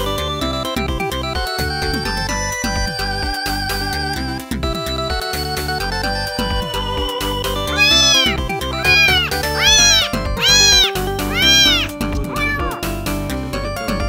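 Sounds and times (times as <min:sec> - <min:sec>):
kitten meowing: 0:07.7 - 0:12.8.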